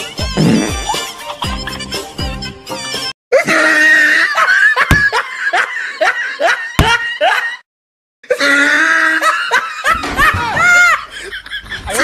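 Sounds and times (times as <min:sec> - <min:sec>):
sharp knocks: 0:04.9 - 0:05.2, 0:06.8 - 0:07.0.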